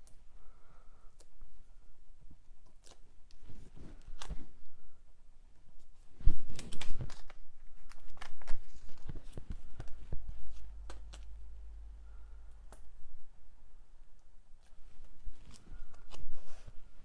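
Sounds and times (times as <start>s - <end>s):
paper rustling: 5.8s - 11.4s.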